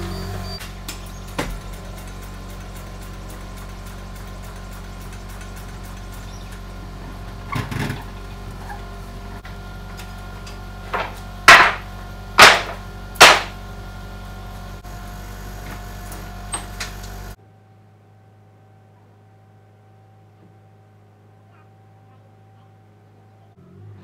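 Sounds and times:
steady hum: 0.0 - 21.5
wooden boards clattering: 10.8 - 13.6
loud wooden clacks: 10.9 - 13.6.

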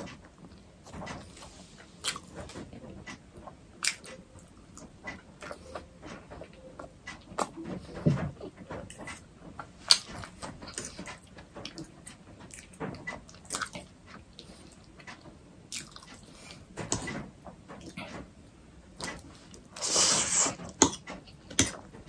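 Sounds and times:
chewing and wet mouth sounds: 13.3 - 16.6.

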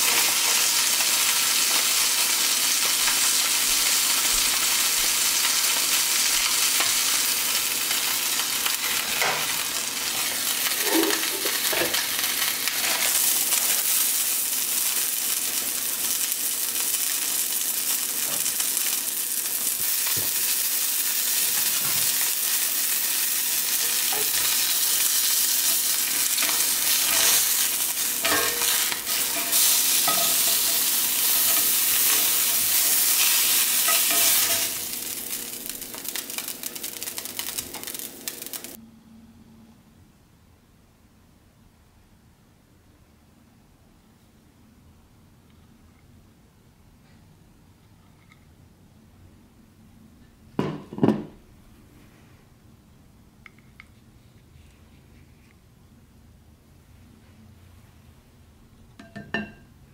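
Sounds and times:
fish fillet sizzling in oil: 0.0 - 38.8.

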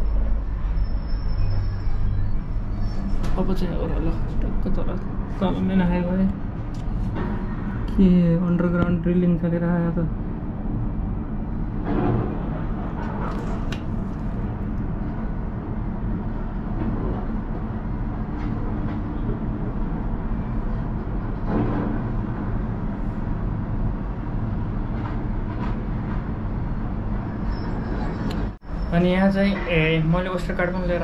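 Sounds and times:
cable car rumble and hum: 0.0 - 31.0.

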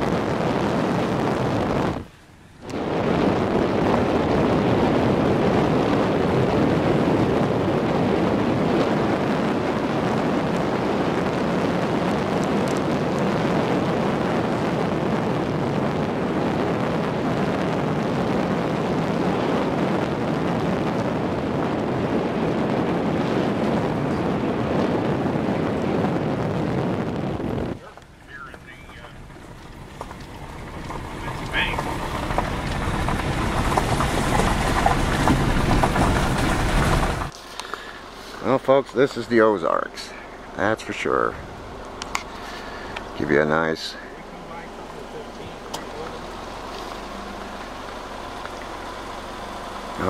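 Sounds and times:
tyre noise on unpaved road: 0.0 - 50.0
wind rushing over microphone: 0.0 - 50.0.

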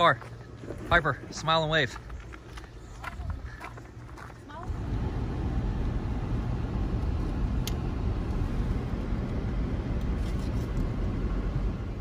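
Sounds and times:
car interior rumble: 2.9 - 12.0.

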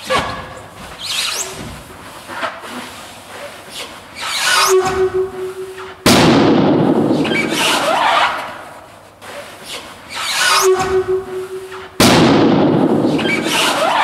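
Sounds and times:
balloons squeaking and rubbing: 0.0 - 6.0, 7.1 - 12.0, 12.9 - 14.0
balloon bang: 6.0 - 7.8, 10.7 - 14.0.

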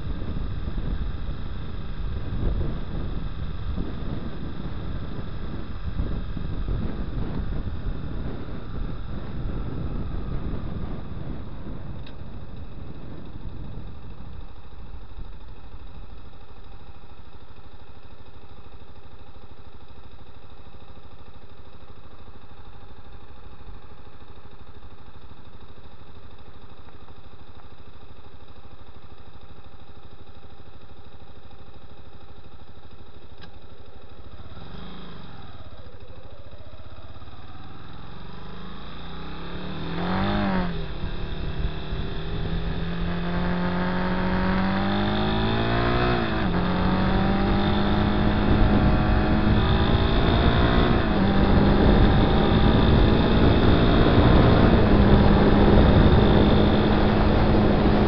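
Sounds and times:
motorcycle engine revving: 0.0 - 17.6, 30.2 - 58.0.

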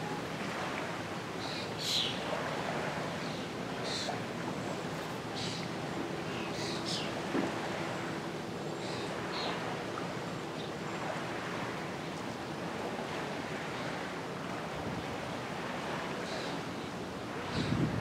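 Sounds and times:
wind rushing in trees: 11.0 - 18.0.

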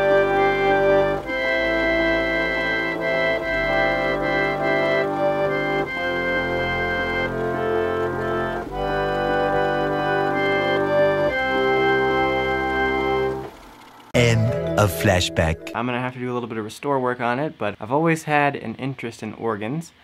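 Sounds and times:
reed organ sustained chords: 0.0 - 13.3, 14.2 - 15.8.

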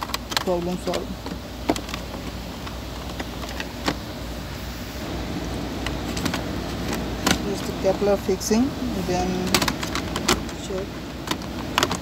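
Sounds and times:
low cabin hum: 0.0 - 12.0
sharp plastic clicks: 9.5 - 10.6, 11.2 - 12.0.

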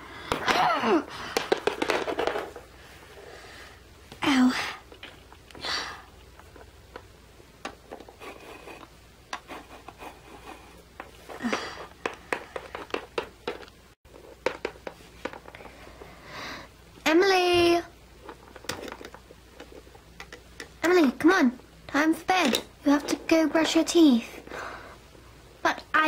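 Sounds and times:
plastic toys clicking on wooden floor: 1.3 - 2.6, 11.3 - 13.8
light scraping and handling noise: 6.3 - 16.1.

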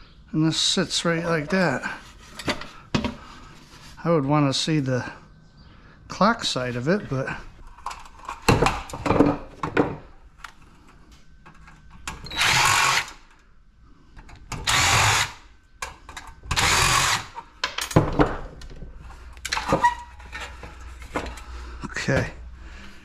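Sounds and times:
cordless drill running: 12.3 - 13.2, 14.6 - 15.4, 16.5 - 17.4.

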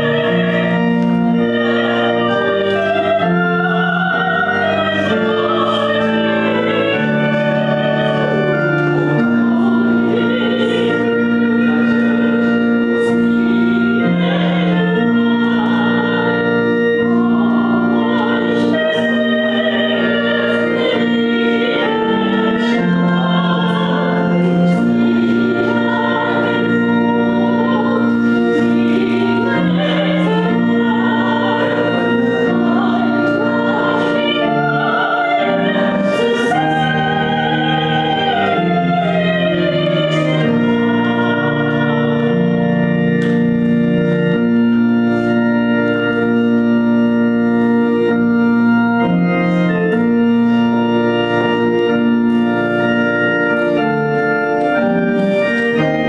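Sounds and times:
person singing: 0.0 - 43.8
organ chords: 0.0 - 56.0.

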